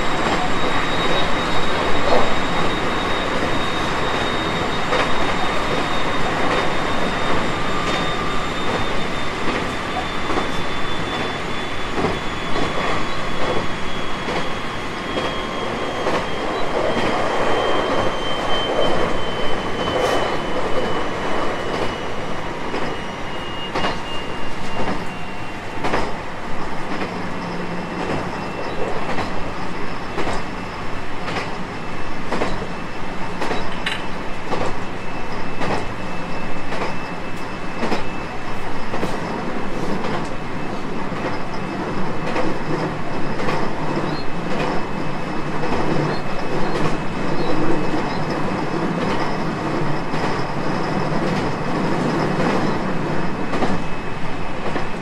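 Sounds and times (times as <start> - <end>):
train wheels rumbling on rail: 0.0 - 55.0
rail-joint clicks: 0.2 - 8.0, 8.6 - 11.3, 11.9 - 17.3, 18.7 - 22.0, 22.6 - 23.0, 23.7 - 25.2, 25.8 - 54.0, 54.6 - 55.0.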